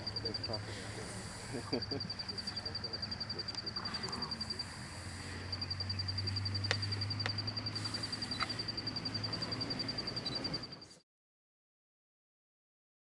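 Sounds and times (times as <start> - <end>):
insect trilling: 0.0 - 10.9
low steady hum: 0.0 - 11.0
sharp clicks: 6.6 - 8.6.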